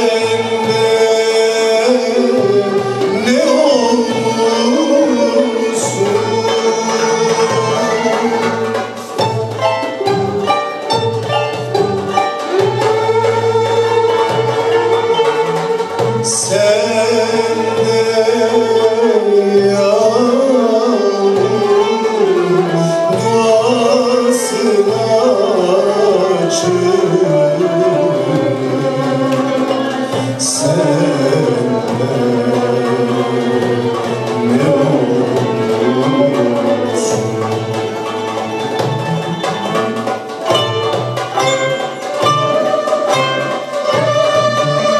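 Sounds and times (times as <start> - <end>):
man singing: 0.0 - 9.0, 16.2 - 38.5
ensemble with violins: 0.0 - 44.9.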